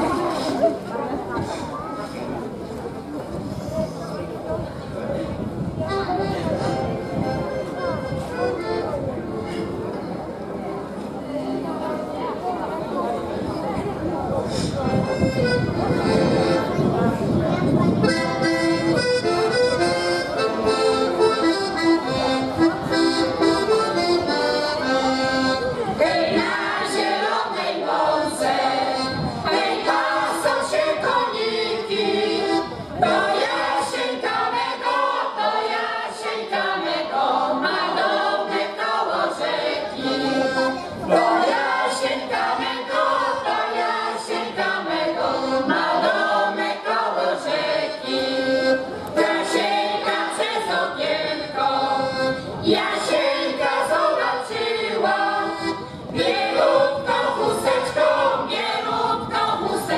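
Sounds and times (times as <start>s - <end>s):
accordion playing folk tune: 5.8s - 10.2s, 14.5s - 59.9s
women's choir singing: 24.2s - 59.9s.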